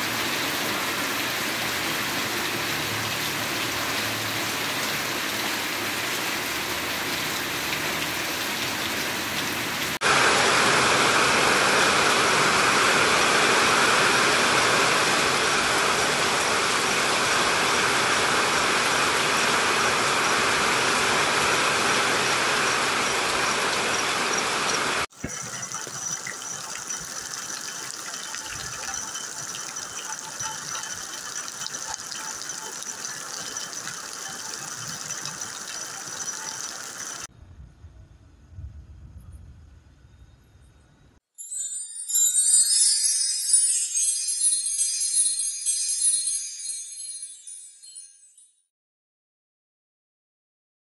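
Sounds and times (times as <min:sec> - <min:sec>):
heavy rain: 0:00.0 - 0:37.3
steady high tone: 0:25.1 - 0:37.3.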